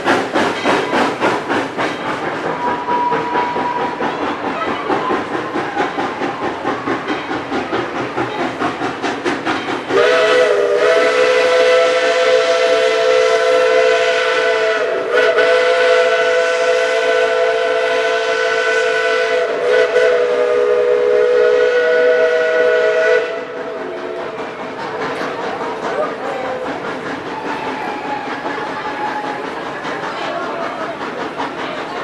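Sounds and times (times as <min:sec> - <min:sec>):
steam locomotive chuffing: 0:00.0 - 0:32.0
steam locomotive whistle: 0:02.5 - 0:06.9, 0:09.8 - 0:26.6, 0:27.2 - 0:29.6.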